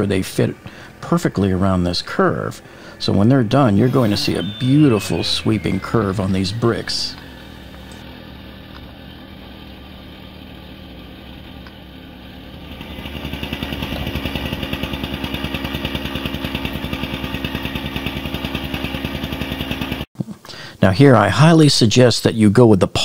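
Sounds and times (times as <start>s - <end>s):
low steady hum: 0.0s - 11.2s
small petrol engine puttering: 0.0s - 20.1s.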